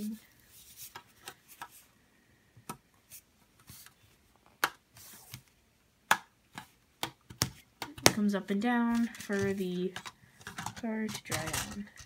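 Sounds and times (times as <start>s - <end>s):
soft rubbing: 0.0s - 2.0s
plastic pieces clicking together: 8.9s - 12.0s.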